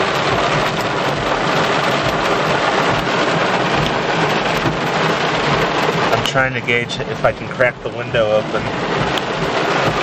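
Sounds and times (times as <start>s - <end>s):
heavy rain pounding on car roof: 0.0s - 10.0s.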